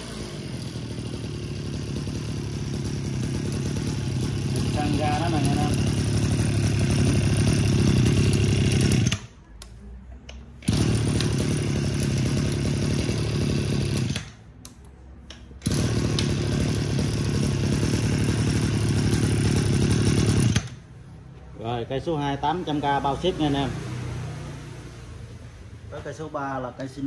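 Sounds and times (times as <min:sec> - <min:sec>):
two-stroke engine revving: 0:00.0 - 0:09.3, 0:10.6 - 0:14.4, 0:15.6 - 0:20.8, 0:22.1 - 0:25.0.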